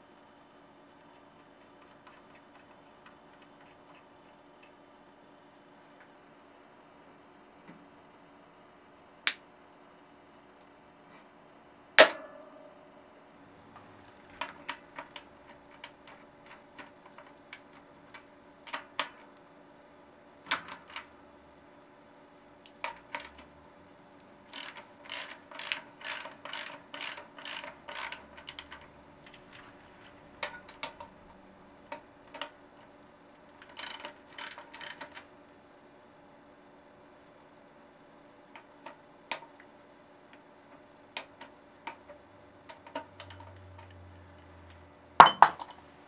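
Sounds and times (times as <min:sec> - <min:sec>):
bicycle freewheel ratcheting: 0:24.5 - 0:28.9, 0:33.6 - 0:35.2.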